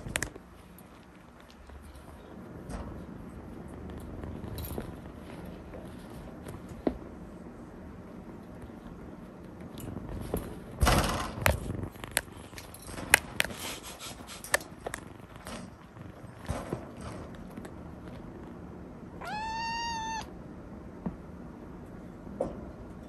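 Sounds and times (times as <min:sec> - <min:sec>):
kitten meowing: 0:19.2 - 0:20.3.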